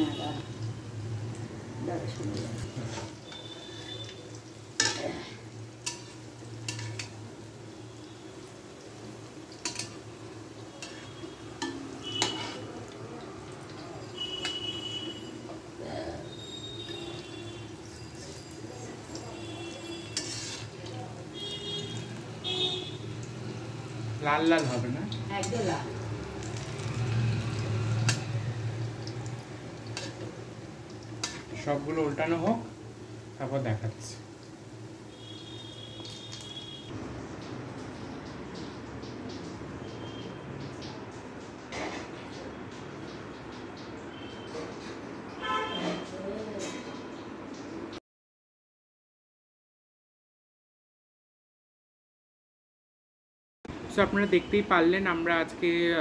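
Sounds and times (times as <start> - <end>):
deep-frying sizzle: 0.0 - 48.0, 53.7 - 56.0
metal spoon clinking on wok: 9.6 - 10.0, 11.6 - 12.6, 29.9 - 30.3.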